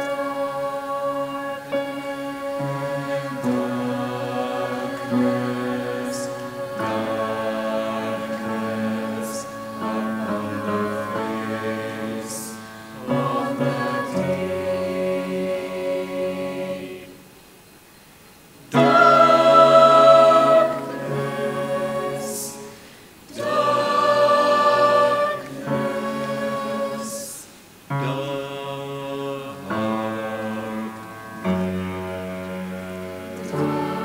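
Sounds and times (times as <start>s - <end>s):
choir singing: 0.0s - 17.5s, 18.6s - 34.0s.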